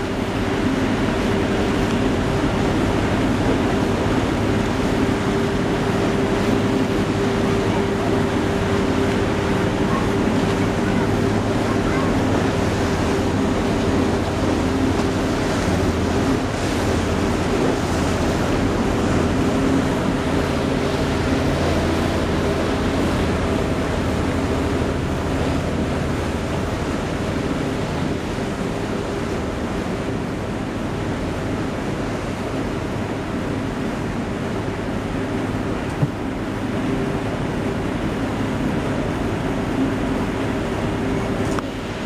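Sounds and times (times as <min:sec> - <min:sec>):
boat engine drone: 0:00.0 - 0:42.0
water wash: 0:00.0 - 0:42.0.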